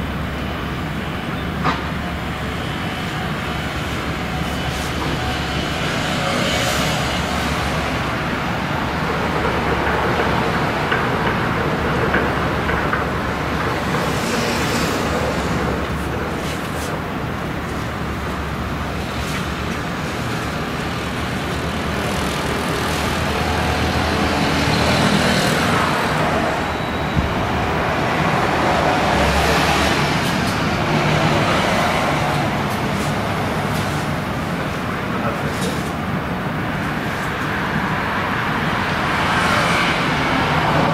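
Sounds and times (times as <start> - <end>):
ship diesel engine hum: 0.0 - 39.2
broad rushing background: 0.0 - 40.9.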